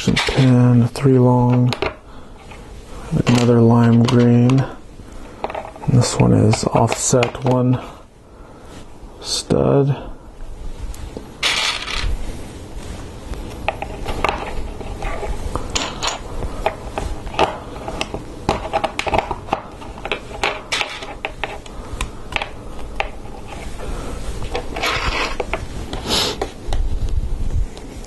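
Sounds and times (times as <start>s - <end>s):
scraping rustle: 10.7s - 15.7s, 23.2s - 26.5s.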